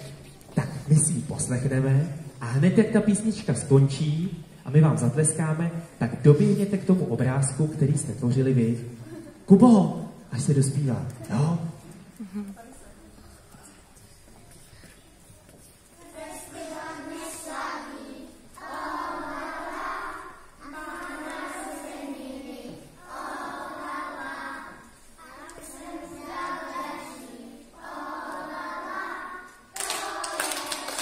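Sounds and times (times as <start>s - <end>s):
children singing unaccompanied: 16.0s - 31.0s
applause: 29.7s - 31.0s.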